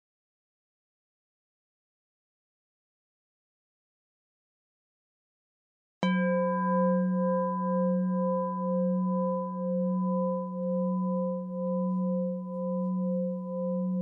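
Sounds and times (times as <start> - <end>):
singing bowl ringing: 6.0 - 14.0.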